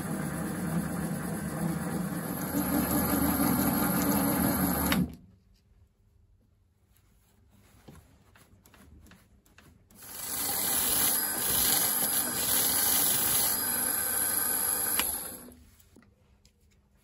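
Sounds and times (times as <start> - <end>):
lathe running with knurling tool: 0.0 - 5.1, 10.0 - 15.5.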